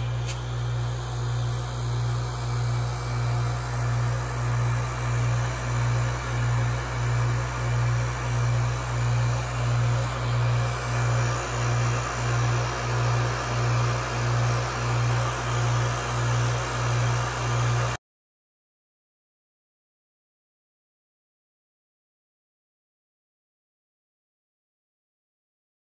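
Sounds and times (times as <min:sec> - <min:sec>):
vacuum pump pulsing hum: 0:00.0 - 0:18.0.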